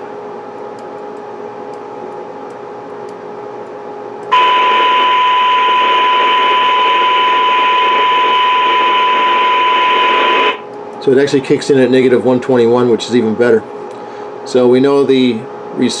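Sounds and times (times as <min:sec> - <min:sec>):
low hum and hiss: 0:00.0 - 0:16.0
steady test tone: 0:04.3 - 0:10.6.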